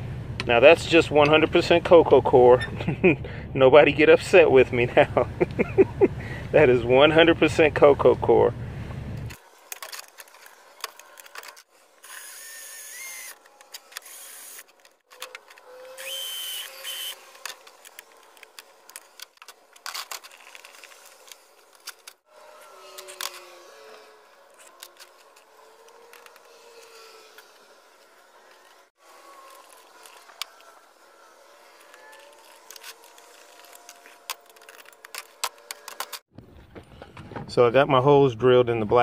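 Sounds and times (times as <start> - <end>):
cordless drill running: 12.0 - 35.9.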